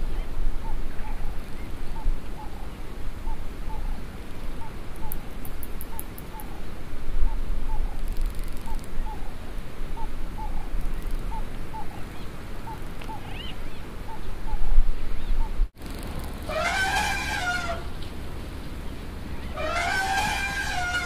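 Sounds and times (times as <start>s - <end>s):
bird twittering: 9.9s - 18.0s
bird chirping: 10.0s - 21.0s.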